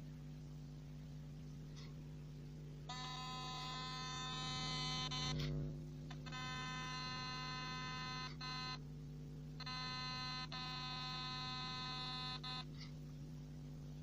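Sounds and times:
electronic buzz from small speaker: 2.8s - 9.0s, 9.6s - 12.9s.

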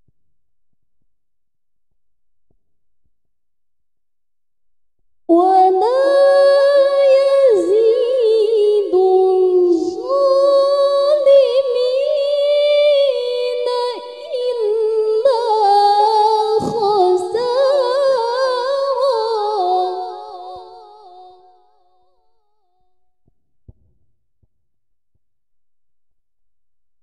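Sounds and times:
woman chanting melodically: 5.3s - 21.7s.

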